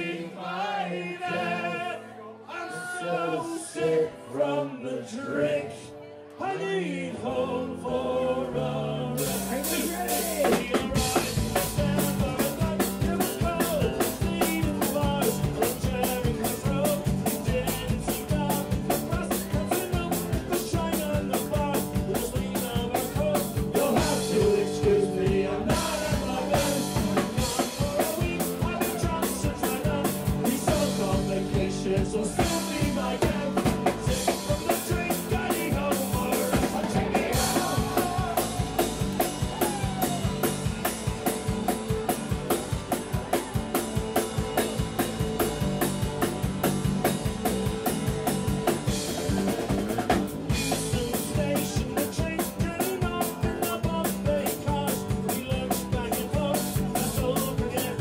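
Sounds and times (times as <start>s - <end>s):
drum kit fast beat: 9.2s - 58.0s.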